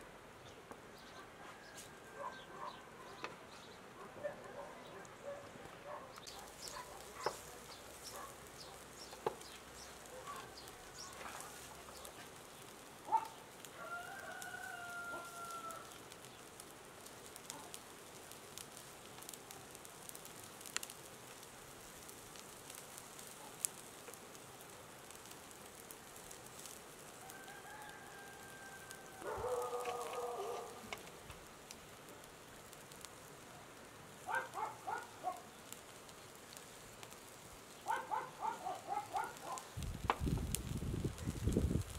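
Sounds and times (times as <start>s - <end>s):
rooster crowing: 1.4s - 2.4s, 13.7s - 16.0s, 27.2s - 30.8s.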